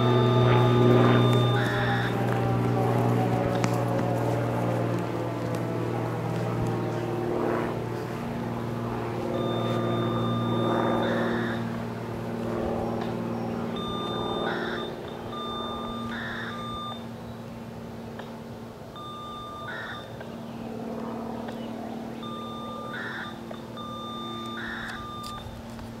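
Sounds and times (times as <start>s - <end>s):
electronic beeping: 0.0s - 2.8s, 9.3s - 11.7s, 13.8s - 17.1s, 19.0s - 20.2s, 22.2s - 25.6s
low mechanical hum: 0.0s - 26.0s.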